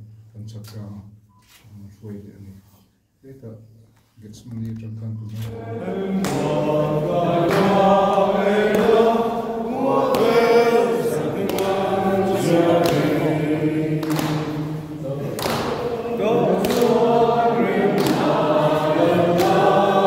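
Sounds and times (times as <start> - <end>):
choir singing: 5.4 - 20.0.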